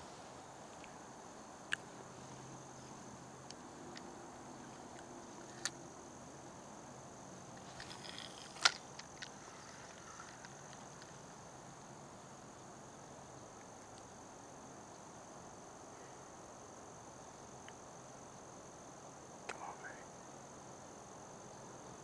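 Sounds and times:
crickets chirring: 0.0 - 22.0
brief rustle: 7.6 - 11.1.

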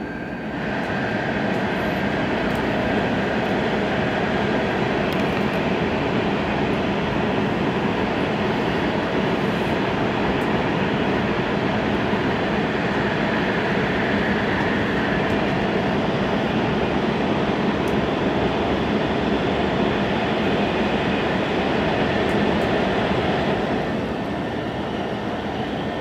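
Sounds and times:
train running rumble: 0.0 - 26.0.

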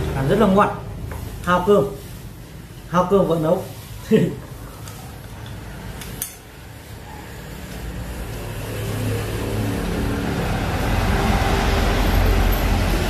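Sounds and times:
passing vehicle engine rumble: 7.1 - 13.0.

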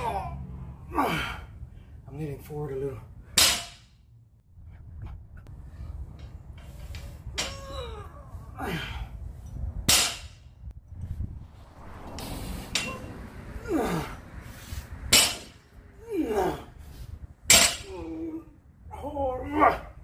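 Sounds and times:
barbell hitting concrete floor: 3.4 - 4.0, 9.9 - 10.4, 15.1 - 15.6, 17.5 - 18.0
lifter grunting: 12.8 - 14.3, 16.0 - 16.7.

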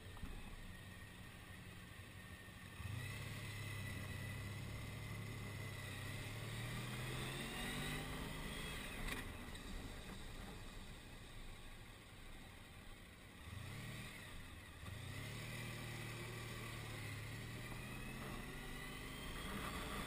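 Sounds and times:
wind and road noise: 0.0 - 20.0
motorcycle engine accelerating: 2.3 - 11.0, 13.3 - 20.0.

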